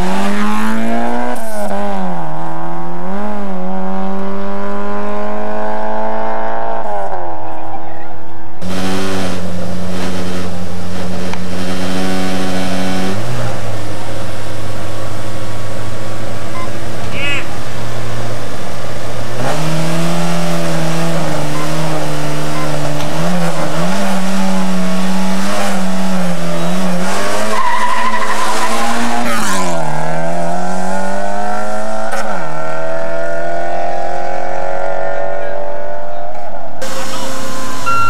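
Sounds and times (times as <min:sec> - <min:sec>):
rally car engine revving: 0:00.0 - 0:38.0
tyre squeal: 0:26.5 - 0:29.7.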